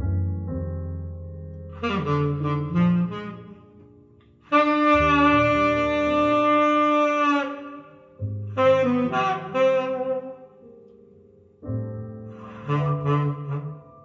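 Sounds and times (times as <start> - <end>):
low bass notes: 0.0 - 3.3
saxophone playing: 1.7 - 11.0, 12.3 - 14.0.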